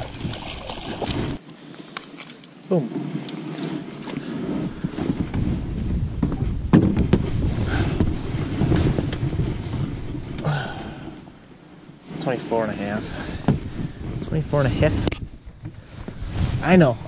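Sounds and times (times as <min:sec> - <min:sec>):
wind buffeting microphone: 0:00.0 - 0:01.4, 0:04.3 - 0:12.1, 0:12.8 - 0:17.0.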